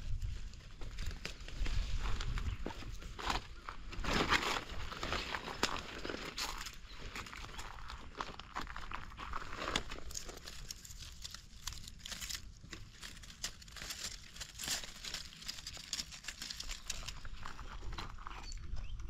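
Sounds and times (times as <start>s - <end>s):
dry leaves crackling and rustling: 0.0s - 18.0s
stems snapping: 9.5s - 17.5s.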